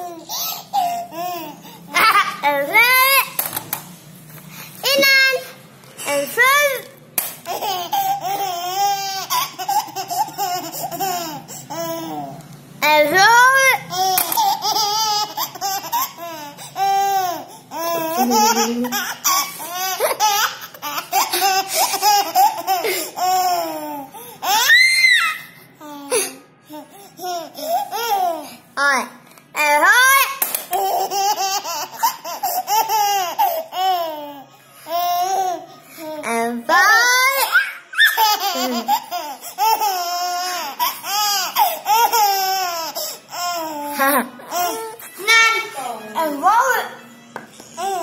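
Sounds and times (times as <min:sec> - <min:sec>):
toddler laughing: 0:07.5 - 0:12.3, 0:13.4 - 0:28.6, 0:30.7 - 0:35.7, 0:37.2 - 0:45.2.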